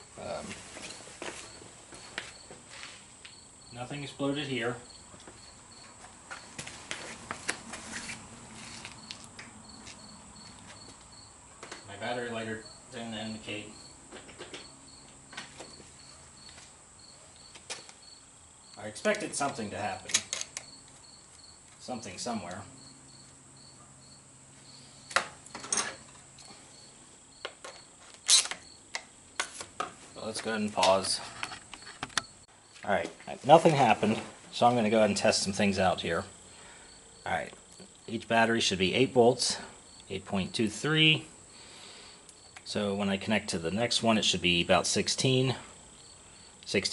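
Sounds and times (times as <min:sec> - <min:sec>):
cricket chirping: 0:00.0 - 0:06.8, 0:07.4 - 0:46.9
hand tools clattering: 0:25.5 - 0:26.2.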